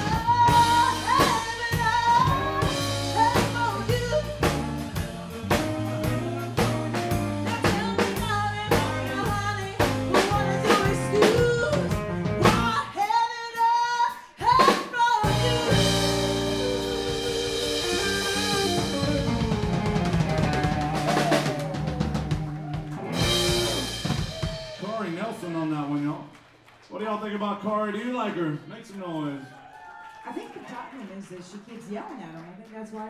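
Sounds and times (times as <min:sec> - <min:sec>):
woman singing: 0:00.0 - 0:18.2
live band playing: 0:00.0 - 0:25.9.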